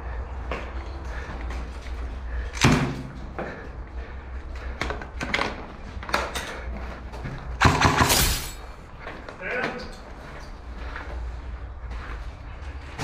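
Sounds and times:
sharp knocks and cracks: 7.6s - 8.5s.

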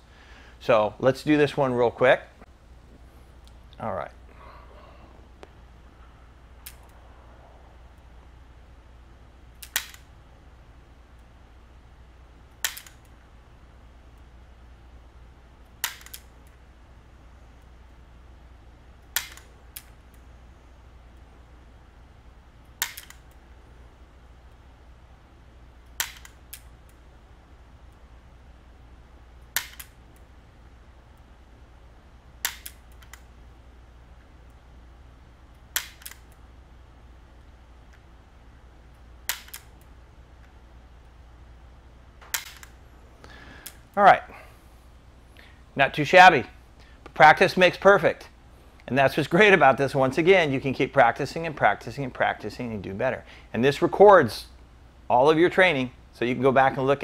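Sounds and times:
pistol dry-fire clicks: 6.6s - 7.0s, 9.6s - 10.1s, 12.5s - 13.1s, 15.6s - 16.6s, 19.0s - 20.0s, 22.7s - 23.4s, 25.8s - 27.0s, 29.4s - 30.0s, 32.4s - 33.3s, 35.7s - 36.4s, 39.3s - 40.5s, 42.3s - 42.8s.

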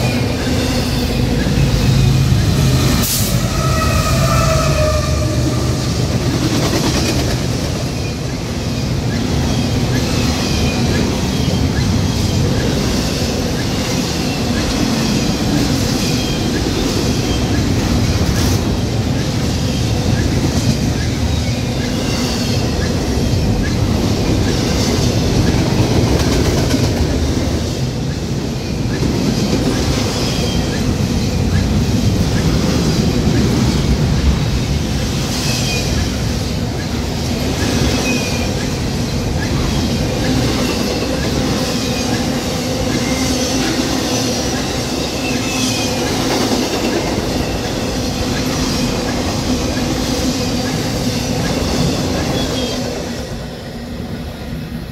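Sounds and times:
clickety-clack over rail joints: 0.0s - 53.3s
steel wheels rumbling on rail: 0.0s - 54.9s
high-pitched wheel squeals: 3.2s - 5.9s.

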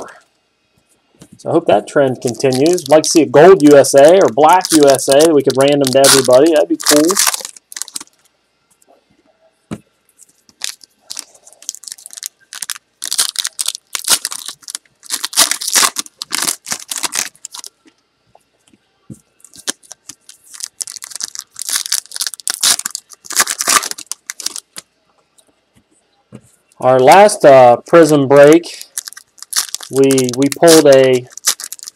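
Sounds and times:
foil wrappers tearing and crinkling: 2.2s - 8.2s, 10.2s - 17.7s, 19.4s - 24.8s, 27.9s - 31.9s.

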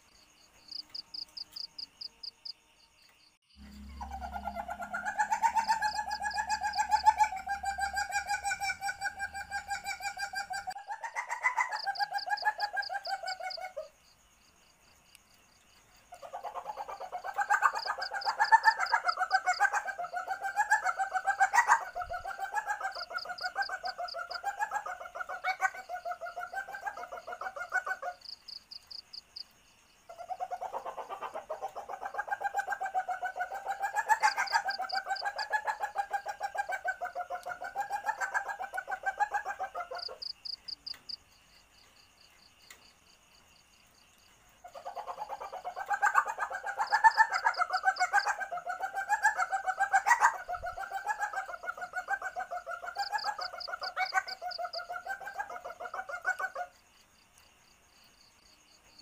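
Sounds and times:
civet chattering call: 3.6s - 13.6s.

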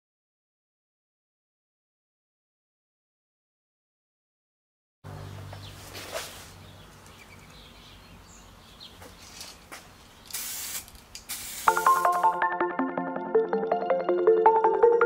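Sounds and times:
aerosol spray can hissing: 10.3s - 12.3s.

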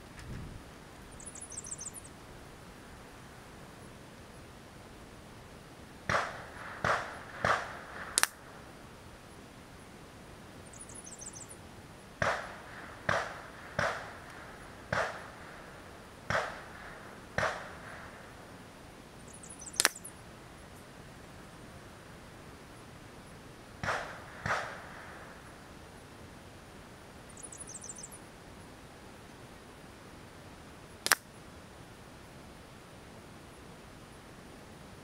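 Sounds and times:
air rifle shots: 6.1s - 8.5s, 12.2s - 15.6s, 16.3s - 18.2s, 23.8s - 25.4s
sharp cracks: 6.1s - 8.6s, 12.2s - 18.2s, 19.7s - 20.1s, 23.8s - 25.4s, 31.0s - 31.3s.

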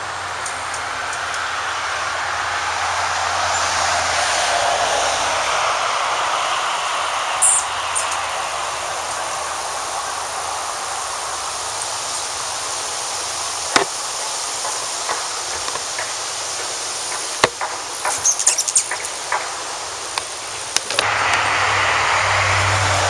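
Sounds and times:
road traffic hiss: 0.0s - 23.0s
hummingbird chip calls: 7.4s - 20.8s.

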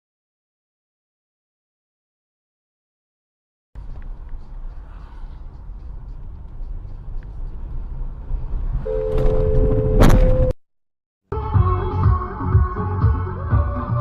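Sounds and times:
car road and engine rumble: 3.8s - 10.6s
two-note car horn: 8.8s - 10.5s
collision crash: 9.0s - 10.6s.

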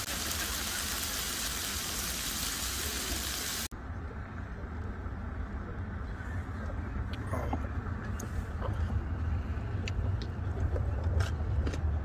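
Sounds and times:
meat sizzling on grill pan: 0.0s - 3.7s.

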